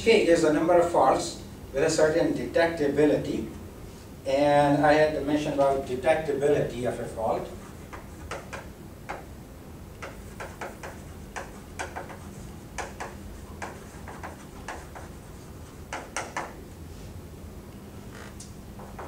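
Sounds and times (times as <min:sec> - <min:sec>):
low room hum: 0:00.0 - 0:19.0
chalk tapping on blackboard: 0:07.6 - 0:09.3, 0:10.0 - 0:16.6.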